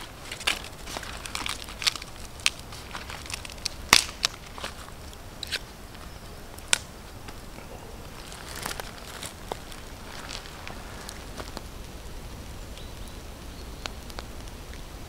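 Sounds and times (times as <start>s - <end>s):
corn husk tearing: 0.0s - 11.7s.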